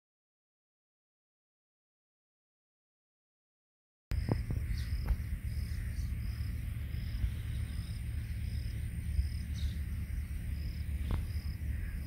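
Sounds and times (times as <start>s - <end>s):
high insect chirp: 4.1s - 12.0s
steady low rumble: 4.1s - 12.0s.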